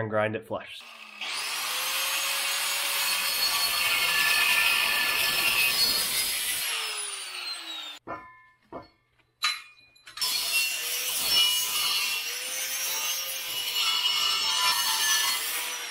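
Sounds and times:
angle grinder cutting steel: 0.8s - 8.0s, 10.1s - 15.9s
grinder wheel spinning down: 0.8s - 8.0s.

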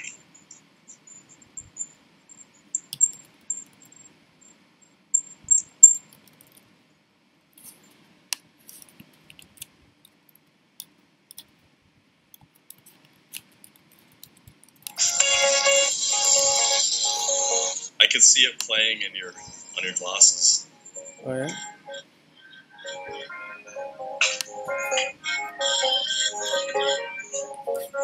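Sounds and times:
mouse and keyboard clicks: 10.8s - 11.6s.

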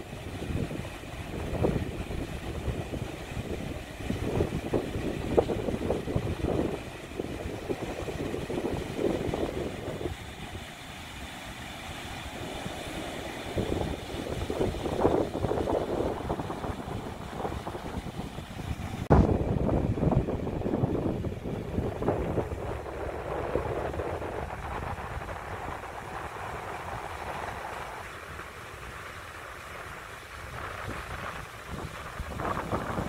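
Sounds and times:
wind buffeting microphone: 0.0s - 11.0s, 12.1s - 33.0s
faint sea surf hiss: 0.0s - 19.1s, 21.0s - 33.0s.

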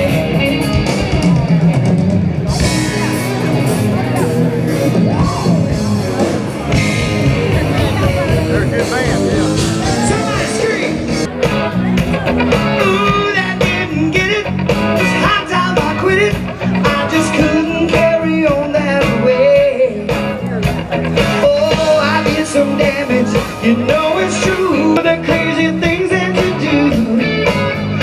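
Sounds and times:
live rock band: 0.0s - 28.0s
man singing: 8.3s - 11.3s, 12.5s - 28.0s.

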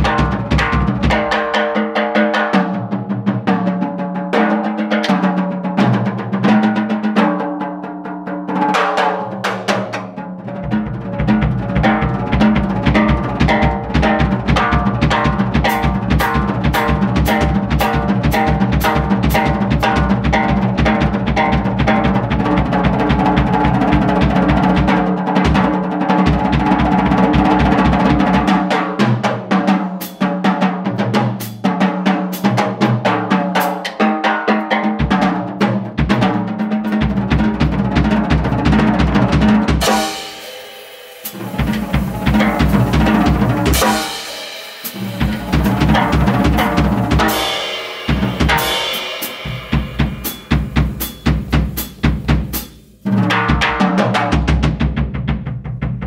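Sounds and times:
drum kit playing: 0.0s - 56.0s
cymbals ringing: 39.8s - 52.0s.

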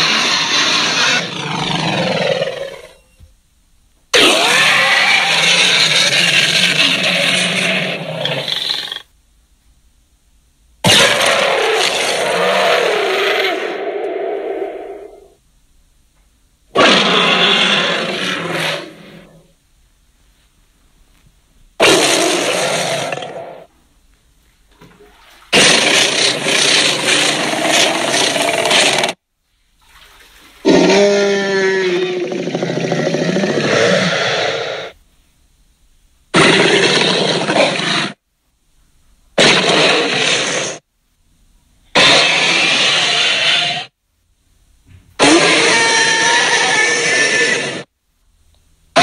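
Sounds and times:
monster roar: 0.0s - 2.9s, 4.2s - 9.0s, 10.9s - 15.3s, 16.8s - 19.4s, 21.8s - 23.7s, 25.6s - 29.2s, 30.6s - 35.0s, 39.4s - 40.8s, 42.0s - 43.9s, 45.2s - 47.9s.

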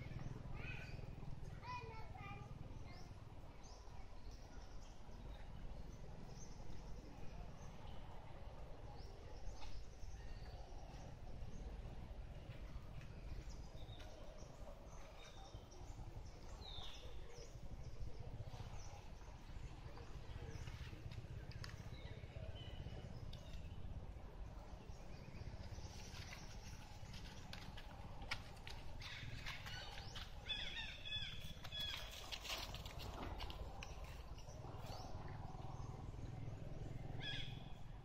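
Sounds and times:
low steady rumble: 0.0s - 38.0s
bird chirps: 29.0s - 32.8s, 37.0s - 37.9s.

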